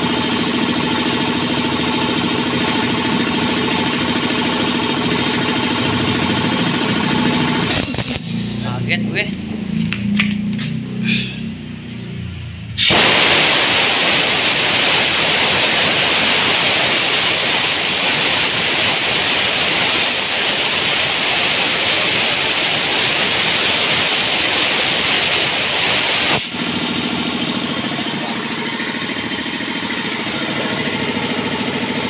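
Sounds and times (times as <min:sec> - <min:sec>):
air compressor pump running: 0:00.0 - 0:32.0
compressed air hissing from valve: 0:07.7 - 0:08.8, 0:12.8 - 0:15.4.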